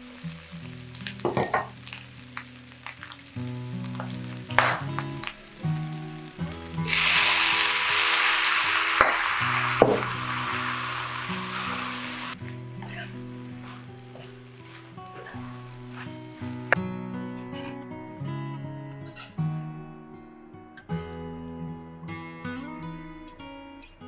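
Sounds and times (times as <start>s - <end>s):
sauce sizzling in a hot wok: 0.0s - 16.8s.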